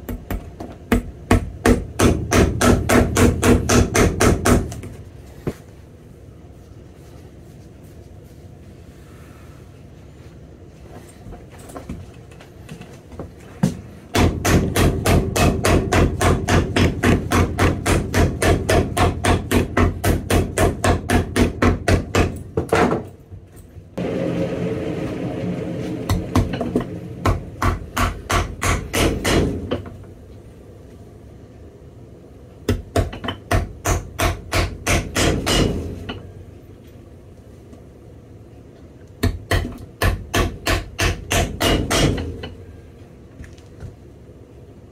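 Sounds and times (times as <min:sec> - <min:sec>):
steady noise with low hum: 0:00.0 - 0:44.9
rapid hammer blows: 0:24.0 - 0:29.8.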